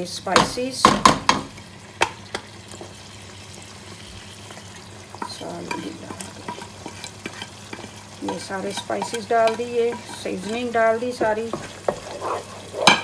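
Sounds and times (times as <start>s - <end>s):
tomato puree sizzling in oil: 0.0s - 13.0s
wooden spoon scraping a pot: 5.1s - 13.0s.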